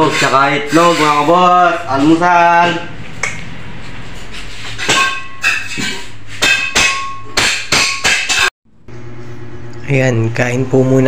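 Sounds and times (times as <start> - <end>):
hammer striking metal: 4.7 - 8.5.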